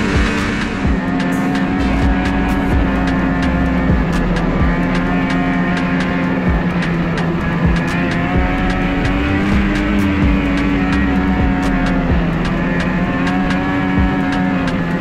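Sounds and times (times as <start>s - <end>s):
rushing wind: 0.0s - 15.0s
snowmobile engine running: 0.0s - 15.0s.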